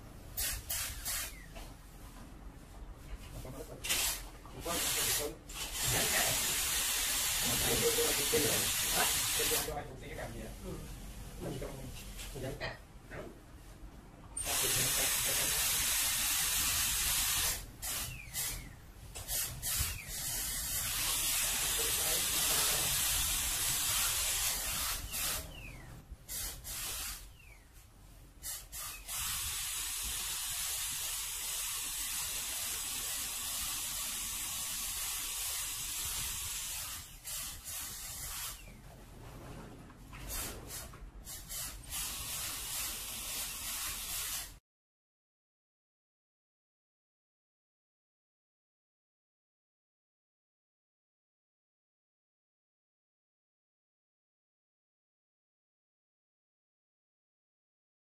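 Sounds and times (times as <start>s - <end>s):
dental handpiece hissing: 0.4s - 1.5s, 14.4s - 25.7s, 28.4s - 38.7s.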